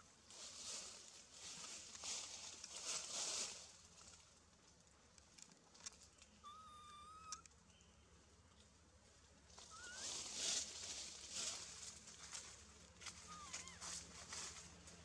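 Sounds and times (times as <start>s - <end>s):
leaves rustling: 0.2s - 4.4s, 9.5s - 15.0s
high whistled animal call: 6.4s - 7.4s, 9.7s - 10.2s.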